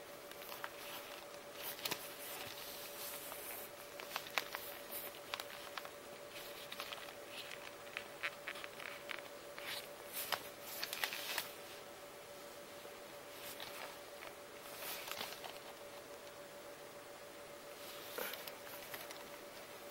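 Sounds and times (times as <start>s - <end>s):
faint steady hum: 0.0s - 19.9s
leather wallet rustling and clicking: 0.3s - 11.5s.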